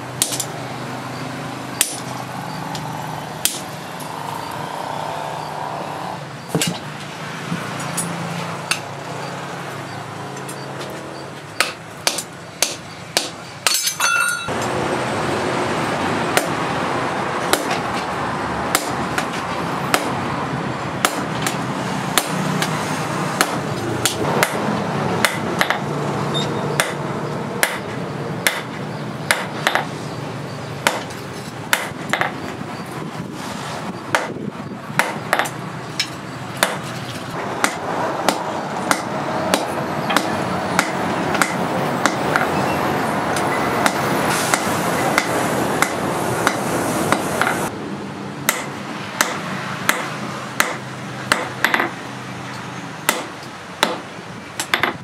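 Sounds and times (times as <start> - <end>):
steady background rush: 0.0 - 55.0
hammer striking hot steel: 0.2 - 0.6, 1.8 - 2.2, 2.8 - 3.7, 11.6 - 14.6, 17.4 - 17.8, 18.7 - 20.2, 21.0 - 22.8, 23.4 - 29.9, 30.8 - 32.5, 34.1 - 34.4, 35.0 - 42.6, 43.4 - 47.7, 48.5 - 52.0, 53.0 - 55.0
short metallic ring: 13.7 - 14.5.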